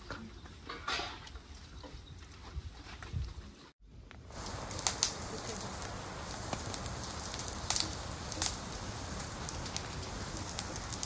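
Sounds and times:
fire crackling and popping: 0:04.1 - 0:11.0.

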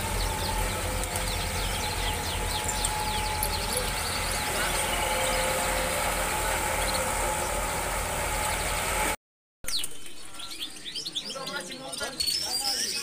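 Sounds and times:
market din: 0:00.0 - 0:09.1
low engine rumble: 0:00.0 - 0:09.2
songbirds chirping and twittering: 0:00.0 - 0:13.0.

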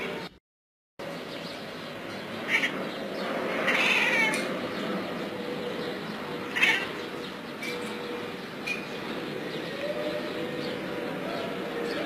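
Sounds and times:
cat meowing: 0:03.6 - 0:04.4, 0:06.5 - 0:06.9.

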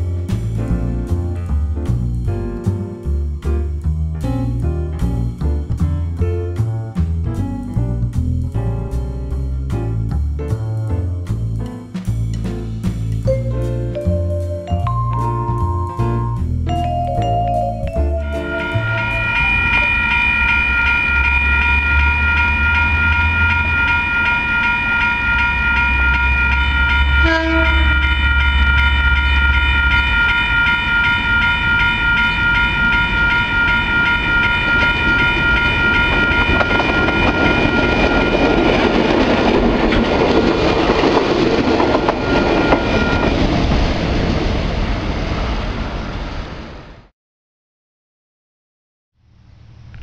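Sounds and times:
engine and rail noise: 0:00.0 - 0:47.1
locomotive air horn: 0:27.2 - 0:28.2.

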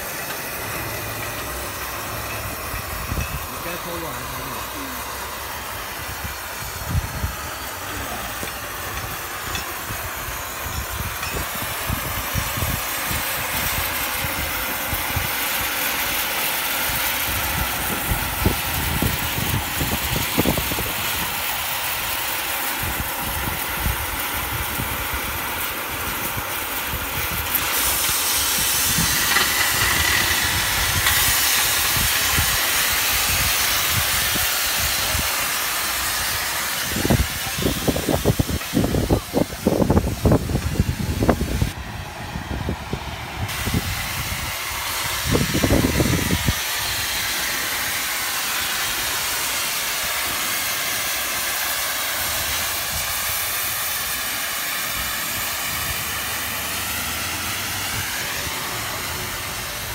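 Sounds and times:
plasma torch hissing: 0:00.0 - 0:41.8, 0:42.5 - 0:59.9
wind on microphone: 0:36.8 - 0:46.6.

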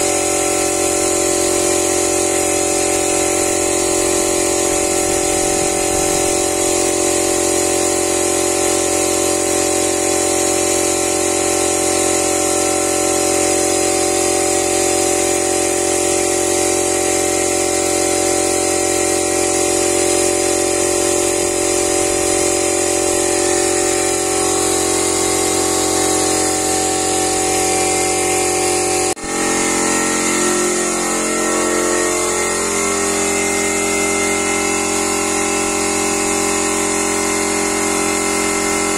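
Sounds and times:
electric air compressor running: 0:00.0 - 0:38.9
spray gun hissing: 0:00.0 - 0:38.9.

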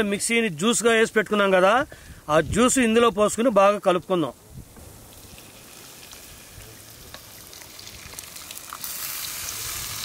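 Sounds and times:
paste sizzling in oil: 0:05.1 - 0:10.0.

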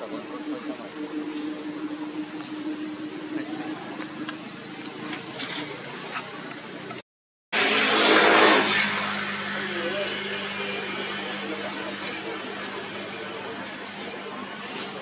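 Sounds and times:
high-pitched insect drone: 0:00.0 - 0:07.0, 0:07.6 - 0:15.0
low steady hum: 0:00.0 - 0:07.0.

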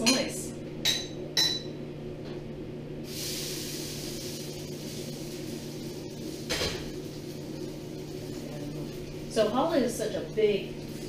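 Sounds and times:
french toast sizzling in frying pan: 0:03.1 - 0:11.0.

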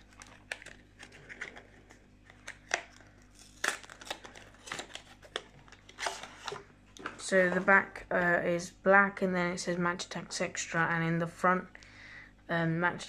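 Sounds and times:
cardboard rustling and scraping: 0:00.1 - 0:02.6.

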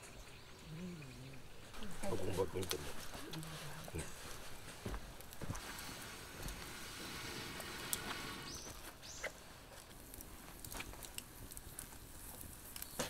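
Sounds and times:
faint steady hiss: 0:00.0 - 0:13.0
small clicks and ticks: 0:09.7 - 0:13.0.

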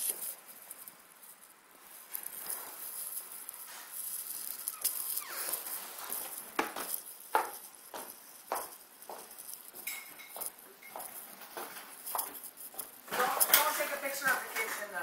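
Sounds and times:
brief high squeak: 0:04.7 - 0:05.6
footsteps on hard floor: 0:04.7 - 0:15.0.

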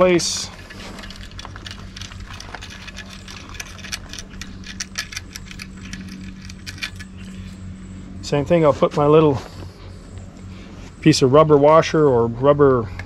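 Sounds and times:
steady low hum: 0:00.0 - 0:13.0
small metal parts clicking: 0:00.2 - 0:07.5.

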